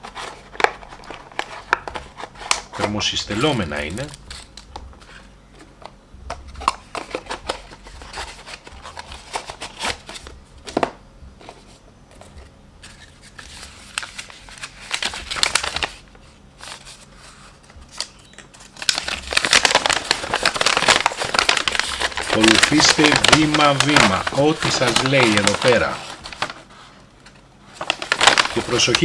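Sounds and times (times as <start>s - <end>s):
paper leaflet crinkling: 0.0s - 5.3s, 11.4s - 29.0s
packaging clicks and rustles: 0.0s - 10.9s, 12.2s - 16.0s, 16.6s - 29.0s.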